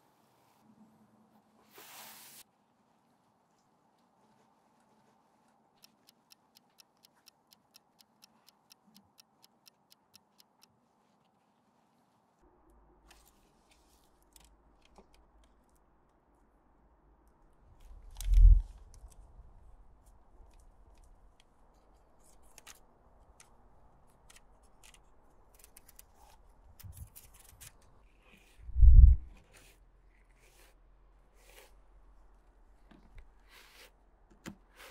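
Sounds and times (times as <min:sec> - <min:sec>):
clock ticking: 0:05.8 - 0:10.7
short low rumble: 0:28.7 - 0:29.3.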